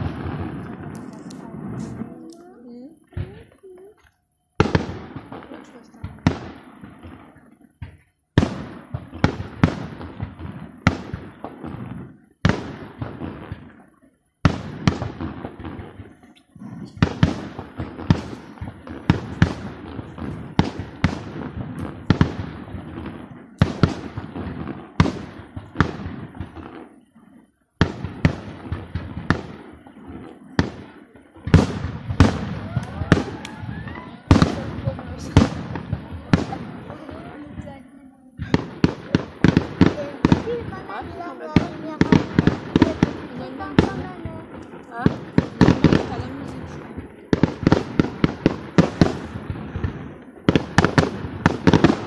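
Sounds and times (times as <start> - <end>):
fireworks shells bursting: 0.0 - 13.9, 27.9 - 52.0.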